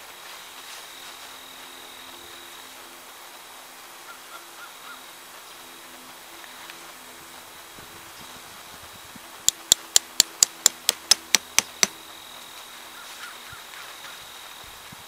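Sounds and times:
tent stake being knocked in: 9.5 - 12.0.

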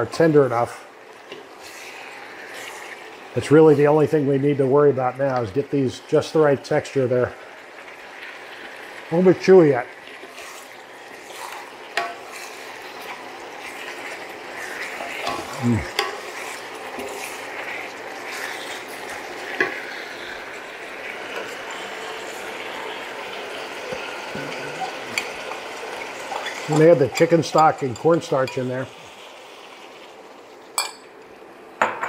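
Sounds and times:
stir-fry sizzling in a skillet: 0.0 - 32.0
wooden spatula scraping a pan: 10.2 - 20.3.

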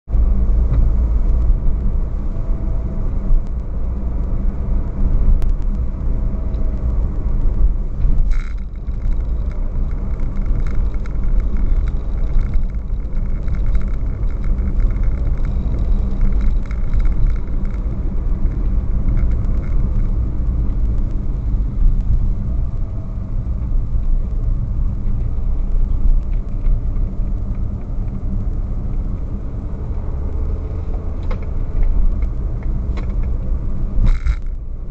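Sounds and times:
engine and tyre rumble: 0.0 - 34.9
faint ticks: 5.2 - 34.9.

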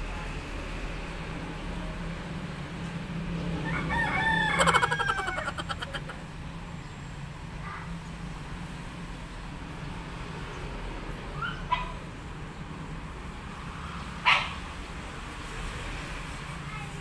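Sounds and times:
rooster crowing: 3.6 - 6.2.

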